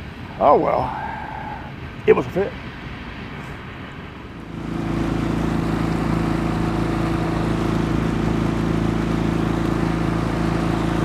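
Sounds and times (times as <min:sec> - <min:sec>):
outboard motor running: 0:04.4 - 0:11.0.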